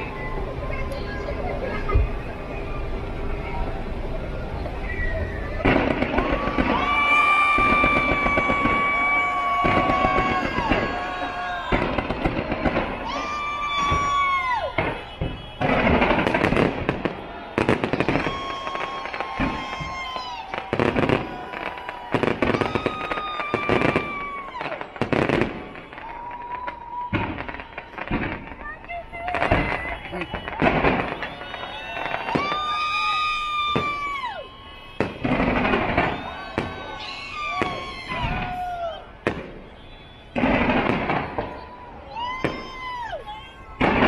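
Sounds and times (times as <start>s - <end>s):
fireworks bangs and crackling: 0.0s - 44.0s
high whistling tone: 4.8s - 5.6s, 35.9s - 38.0s.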